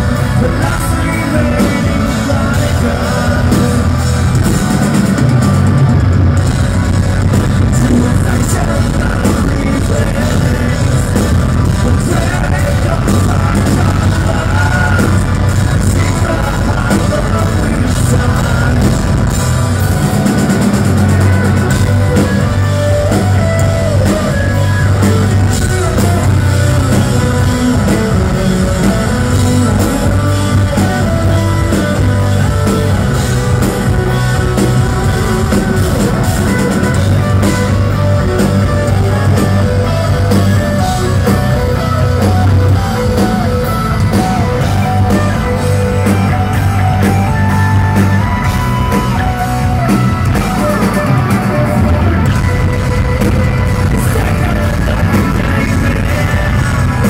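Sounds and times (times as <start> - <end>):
live rock band playing: 0.0 - 57.0.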